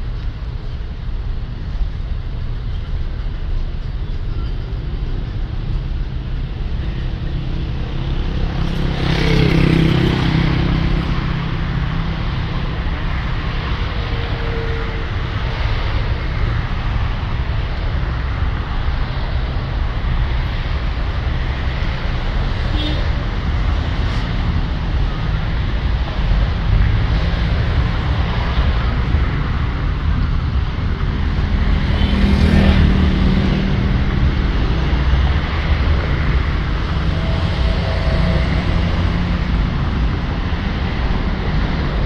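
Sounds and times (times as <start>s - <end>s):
street traffic rumble: 0.0s - 42.0s
vehicle passing: 7.7s - 12.6s, 26.5s - 42.0s.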